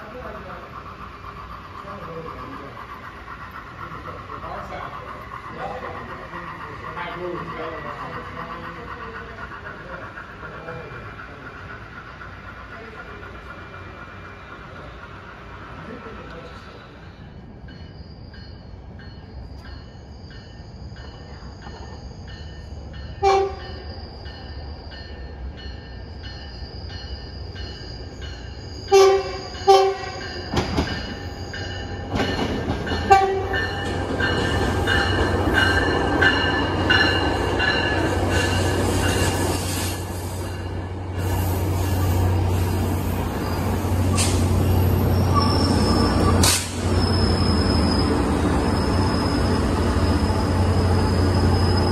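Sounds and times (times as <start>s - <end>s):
train rumbling past: 0.0s - 51.9s
crossing bell dinging: 17.5s - 39.6s
train horn blasts: 23.2s - 23.8s, 28.9s - 30.2s, 33.1s - 33.6s.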